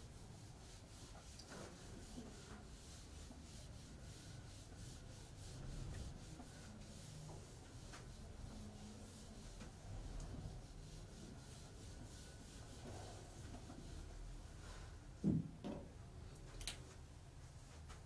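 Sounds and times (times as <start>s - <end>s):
eraser rubbing on whiteboard: 0.0s - 14.2s.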